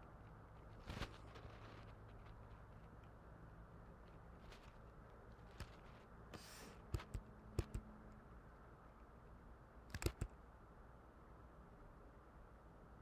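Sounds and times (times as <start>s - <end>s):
soft hiss: 0.0s - 7.0s
low room hum: 0.0s - 13.0s
computer mouse clicks: 6.4s - 8.2s, 9.9s - 10.4s.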